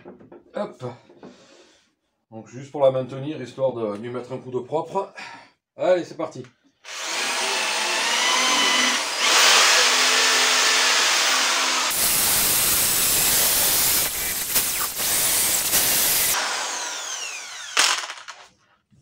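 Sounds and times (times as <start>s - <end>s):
motor winding down whine: 6.9s - 18.2s
electric drill spinning: 6.9s - 18.5s.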